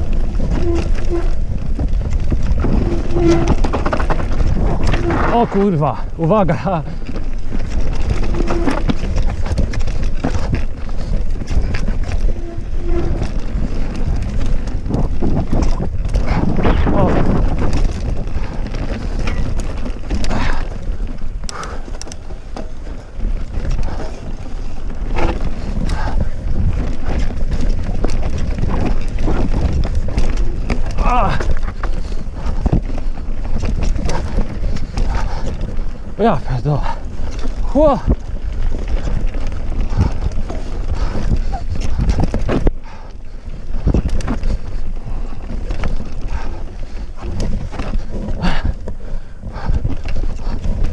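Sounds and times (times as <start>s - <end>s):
bike knocking and rattling: 0.0s - 50.9s
tyres on dirt trail: 0.0s - 50.9s
wind buffeting microphone: 0.0s - 50.9s.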